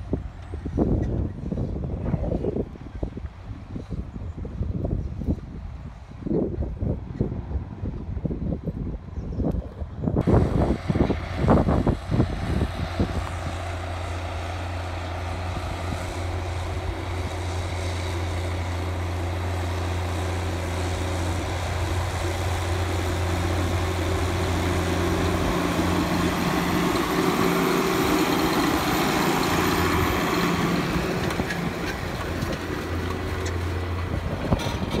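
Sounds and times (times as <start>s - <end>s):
wind gusts on microphone: 0.0s - 35.0s
tractor diesel engine under load: 10.2s - 35.0s.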